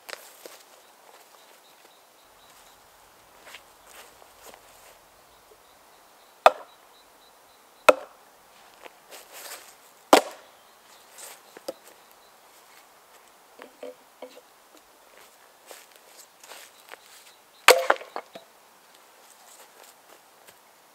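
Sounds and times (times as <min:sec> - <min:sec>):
maul striking wooden wedge: 0:06.4 - 0:06.7, 0:07.9 - 0:08.2, 0:10.1 - 0:10.4, 0:17.7 - 0:18.5.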